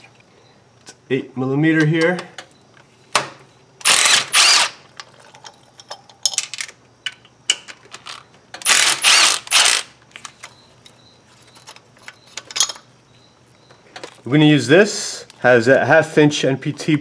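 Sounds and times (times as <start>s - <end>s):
clinks of tool and metal: 10.2s - 12.9s.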